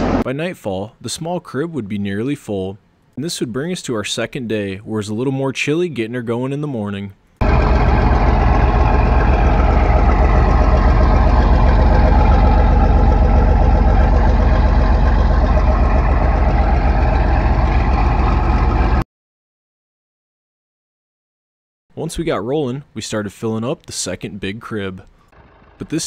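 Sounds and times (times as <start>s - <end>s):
tractor engine idling: 7.4s - 19.0s, 25.3s - 26.0s.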